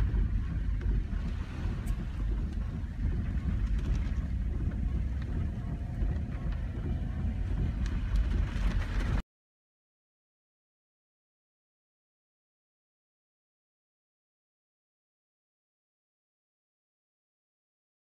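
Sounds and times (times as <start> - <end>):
heavy rain: 0.0 - 9.2
vehicle driving low rumble: 0.0 - 9.2.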